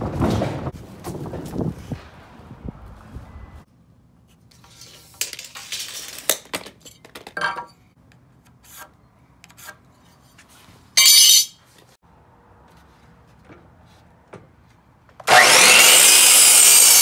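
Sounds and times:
metal square clinking: 0:11.0 - 0:11.6.

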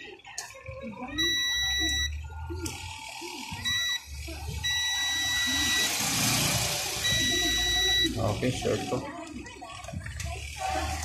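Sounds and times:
multimeter continuity beeps: 0:01.1 - 0:06.2, 0:06.9 - 0:08.5.

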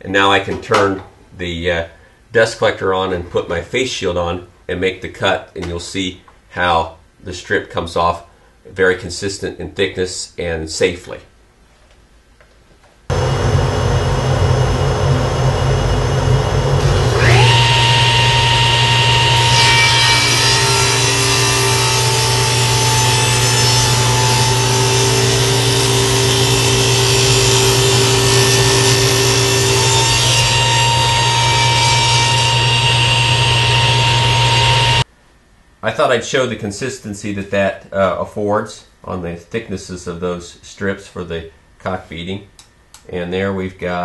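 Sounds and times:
dust collector running: 0:13.1 - 0:35.0
table saw motor whine: 0:13.1 - 0:35.0
saw blade ripping wood: 0:17.2 - 0:35.0.

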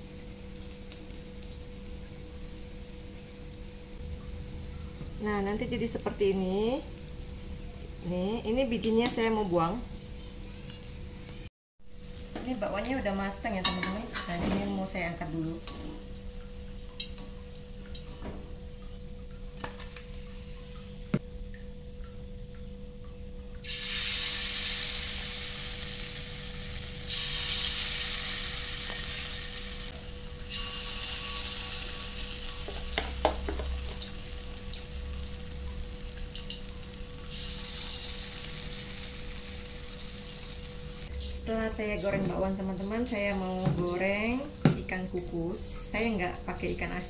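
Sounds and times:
batter sizzling in hot oil: 0:23.6 - 0:41.1
utensil knocking on wok: 0:32.7 - 0:33.9.

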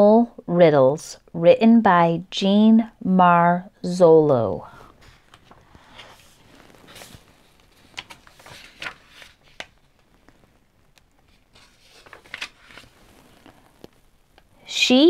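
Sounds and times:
book pages turning: 0:04.8 - 0:14.1.

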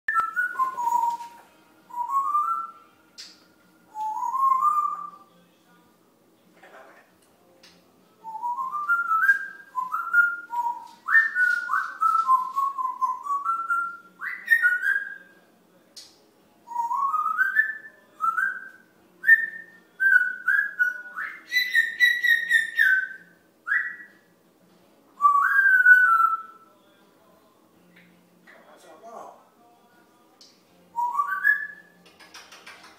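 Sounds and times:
parrot whistling: 0:00.1 - 0:05.2, 0:08.2 - 0:15.3, 0:16.7 - 0:24.1, 0:31.0 - 0:32.0.

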